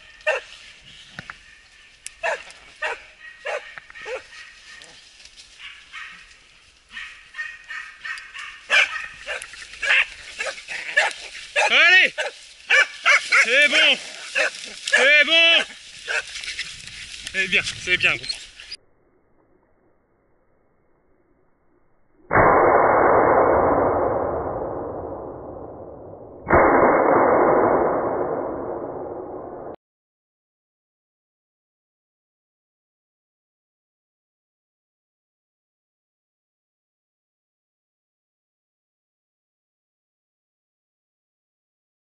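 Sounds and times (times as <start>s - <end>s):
gunshots with long echo: 22.3s - 29.8s.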